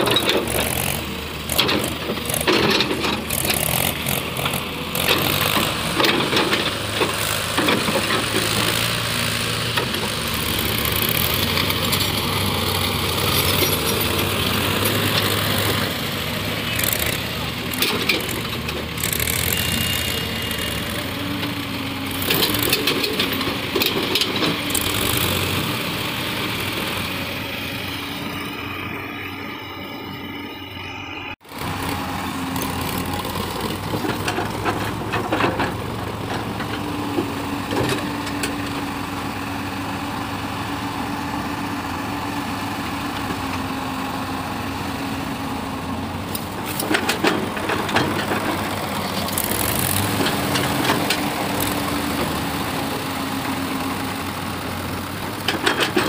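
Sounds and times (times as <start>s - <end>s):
diesel engine running: 0.0s - 56.0s
hydraulic whine: 9.7s - 34.0s.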